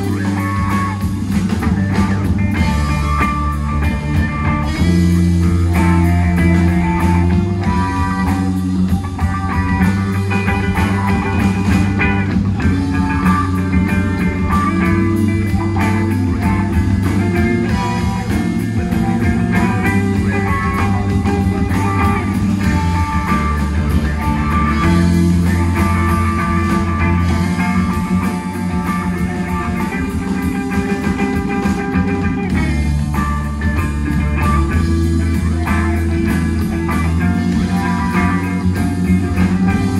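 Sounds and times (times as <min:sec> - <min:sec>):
electric guitar: 0:00.0 - 0:39.9
rock band playing: 0:00.0 - 0:39.9.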